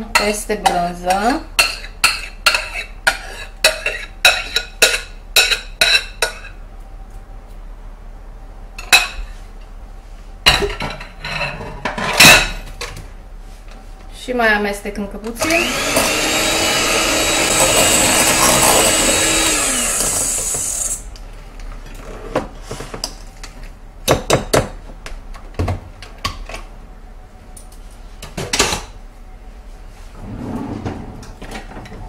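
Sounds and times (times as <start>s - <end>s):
electric hand mixer running: 15.4s - 21.1s.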